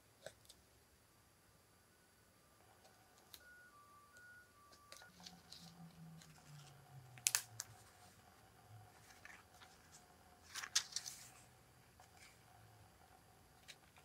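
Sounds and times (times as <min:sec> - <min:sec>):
faint steady hum: 0:00.0 - 0:14.0
paper rustling: 0:08.9 - 0:12.4.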